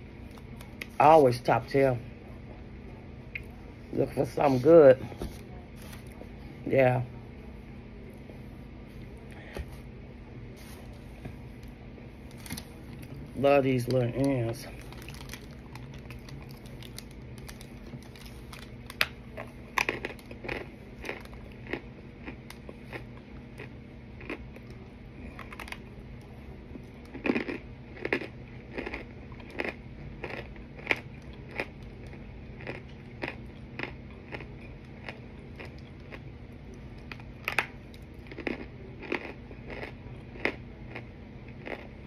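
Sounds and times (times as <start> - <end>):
steady low hum: 0.0 - 42.0
crunchy chewing: 14.2 - 42.0.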